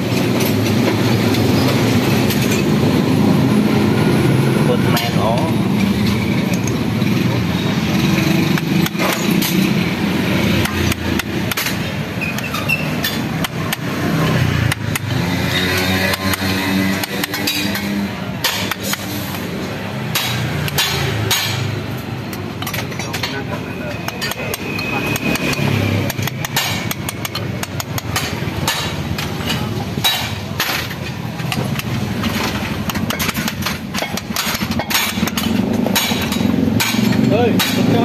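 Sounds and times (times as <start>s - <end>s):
hammer tapping on metal: 8.2s - 23.4s, 24.0s - 38.0s.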